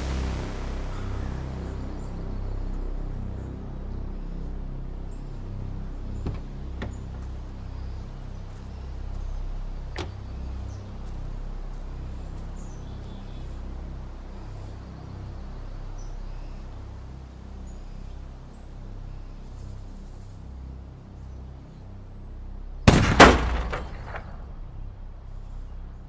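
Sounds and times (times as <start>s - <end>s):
low outdoor rumble: 0.0s - 26.0s
car door shutting: 6.2s - 7.2s, 9.9s - 10.2s.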